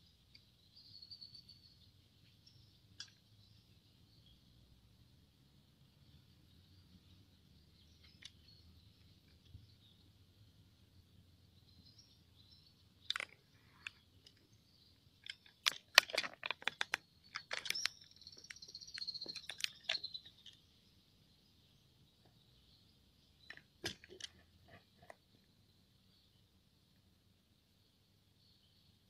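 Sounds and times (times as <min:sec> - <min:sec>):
crickets chirping: 0:00.0 - 0:04.4, 0:06.0 - 0:21.3.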